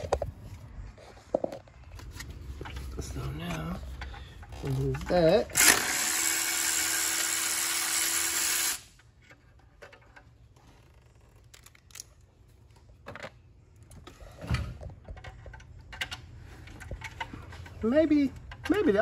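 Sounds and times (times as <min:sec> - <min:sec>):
parts clicking and clinking: 0:00.0 - 0:06.2, 0:08.6 - 0:19.0
impact gun whirring: 0:05.5 - 0:09.0.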